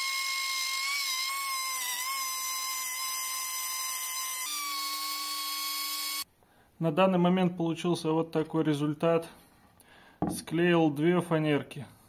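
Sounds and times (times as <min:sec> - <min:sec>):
router whining cutting wood: 0:00.0 - 0:06.2.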